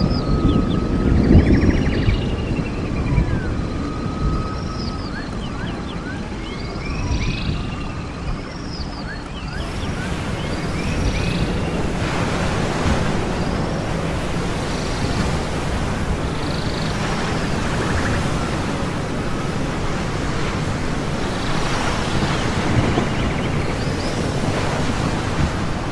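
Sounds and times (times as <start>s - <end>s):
dense rushing noise: 9.6s - 25.9s.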